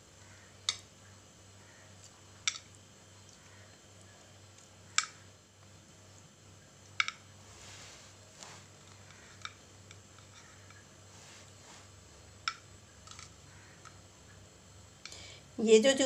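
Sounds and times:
faint low hum: 0.0s - 16.0s.

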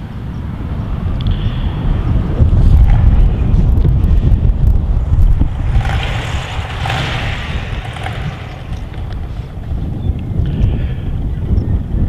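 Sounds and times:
wind rumbling on microphone: 0.0s - 12.0s
motorcycle trike driving past: 2.5s - 10.1s.

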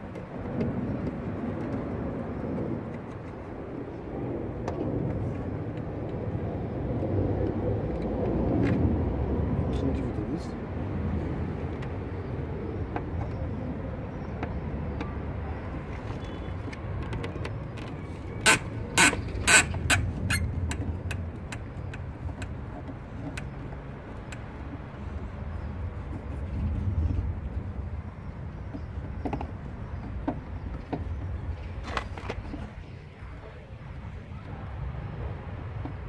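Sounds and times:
steady low rumble: 18.0s - 36.0s.

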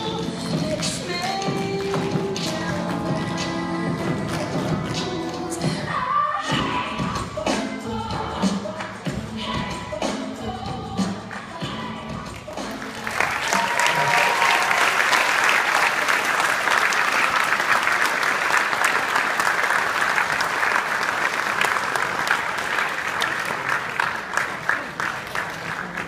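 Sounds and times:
audience applauding: 12.7s - 26.0s.

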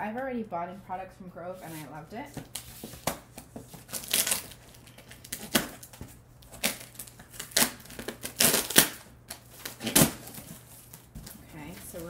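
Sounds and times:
tape and cardboard ripping: 2.4s - 11.4s
knife slicing packing tape: 3.9s - 4.6s, 6.5s - 10.5s.

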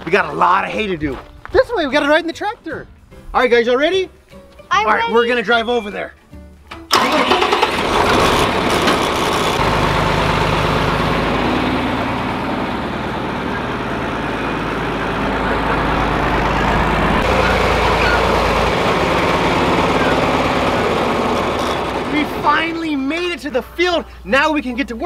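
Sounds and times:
tractor engine droning: 6.9s - 23.9s.

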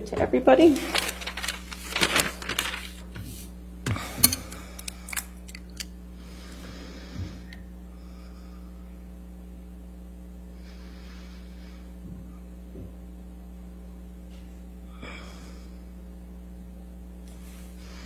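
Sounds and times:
low electrical hum: 0.0s - 18.0s
paper rustling: 0.7s - 3.5s.

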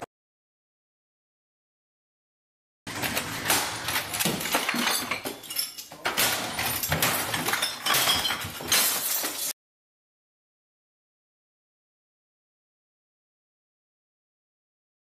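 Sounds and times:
objects smashing and breaking: 2.9s - 9.6s.

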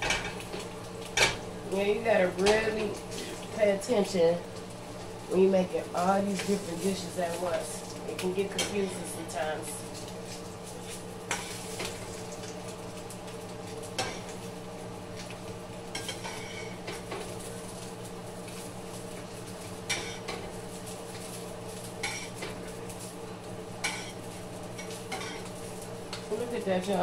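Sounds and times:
steady low hum: 0.0s - 27.0s
spatula scraping a frying pan: 15.9s - 17.0s.

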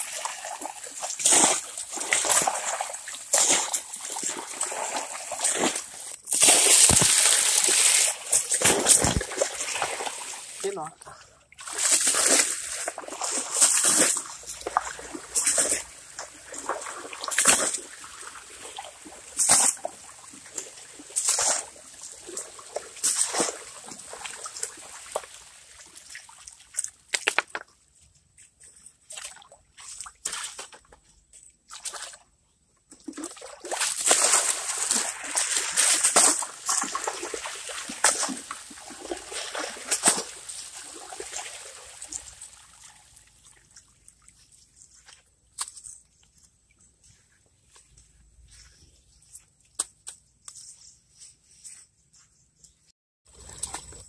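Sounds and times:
water splashing onto gravel: 0.0s - 10.9s, 11.6s - 27.7s, 33.1s - 44.4s
water trickling over gravel: 11.6s - 31.0s, 33.8s - 49.8s.

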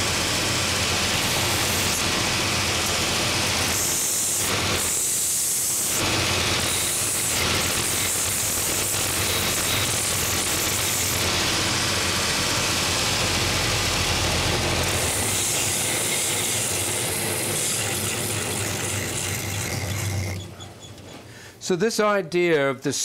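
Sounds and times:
motor hum: 0.0s - 21.4s
sanding belt rasping wood: 14.8s - 20.4s.

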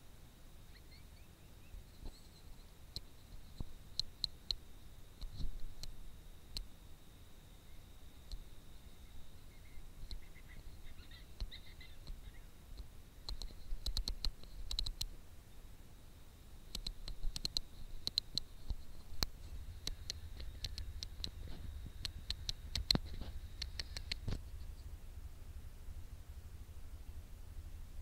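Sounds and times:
faint high-pitched whine: 0.0s - 28.0s
sharp clicks: 12.8s - 15.1s, 16.7s - 24.4s
light scratches: 16.8s - 24.9s.

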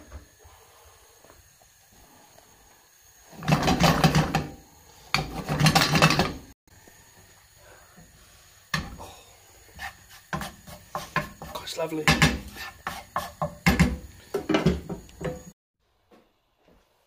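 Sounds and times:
frying pan scraping and rattling: 3.3s - 6.5s.

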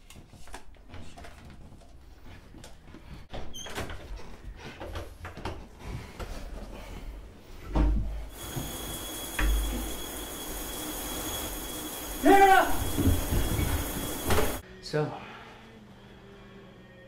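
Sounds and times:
steady hiss: 8.3s - 14.6s.

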